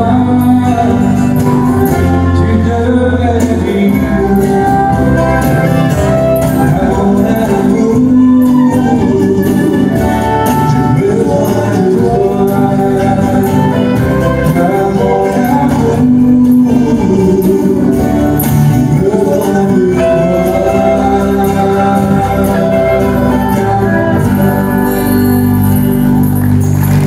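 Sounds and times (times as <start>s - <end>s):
two men singing together: 0.0s - 25.4s
strummed acoustic guitars: 0.0s - 27.0s.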